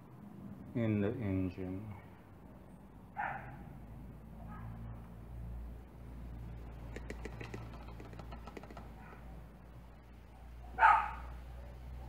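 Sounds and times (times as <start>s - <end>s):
oil pouring through funnel: 6.7s - 9.0s
bottle and funnel clicks: 6.7s - 9.3s.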